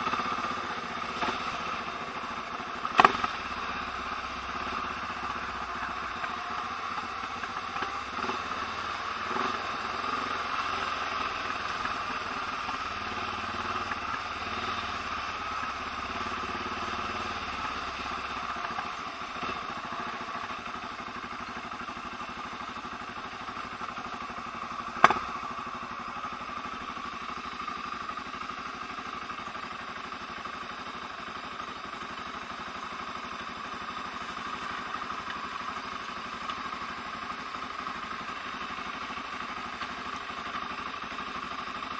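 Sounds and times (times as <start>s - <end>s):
motorcycle engine running at low revs: 0.0s - 41.9s.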